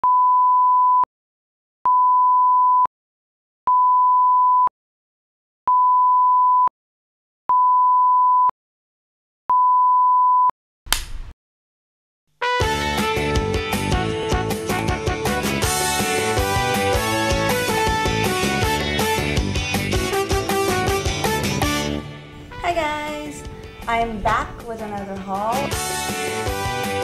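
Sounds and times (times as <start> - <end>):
music: 12.4 - 27.0.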